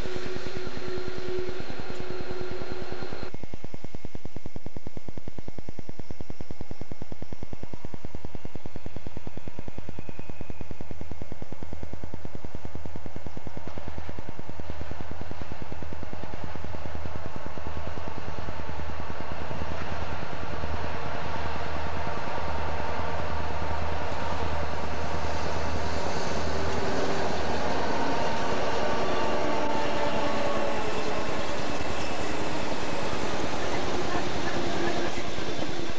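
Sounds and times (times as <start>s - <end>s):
diesel locomotive engines rumbling: 0.0s - 3.4s, 13.2s - 35.9s.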